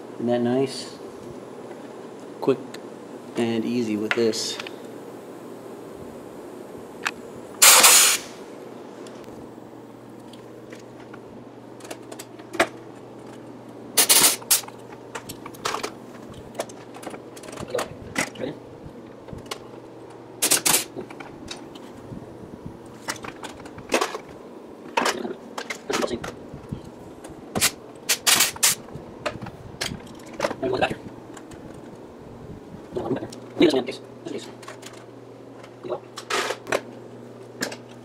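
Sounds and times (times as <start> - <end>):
pneumatic rivet gun bursts: 7.6 - 8.4, 14.0 - 14.7, 20.4 - 21.0, 27.6 - 28.8.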